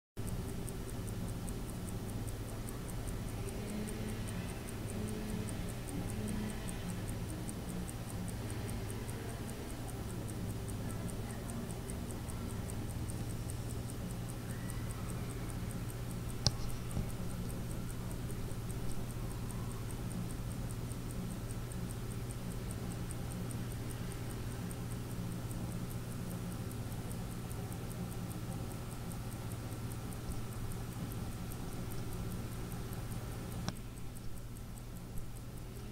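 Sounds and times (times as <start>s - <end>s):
wristwatch ticking: 0.2s - 35.9s
sharp click: 13.7s - 26.0s, 28.9s - 35.9s.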